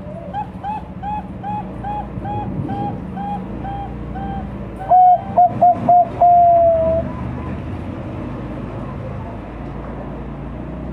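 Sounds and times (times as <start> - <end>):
dove cooing: 0.0 - 7.6.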